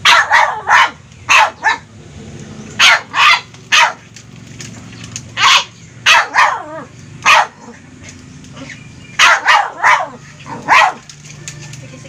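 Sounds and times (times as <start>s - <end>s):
dog barking: 0.0s - 1.9s, 2.8s - 4.0s, 5.4s - 7.8s, 9.2s - 11.1s.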